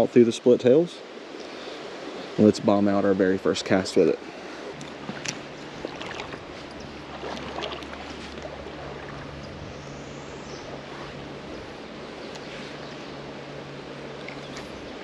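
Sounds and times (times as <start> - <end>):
creek water running: 0.0 - 15.0
faint clicks: 12.3 - 12.5.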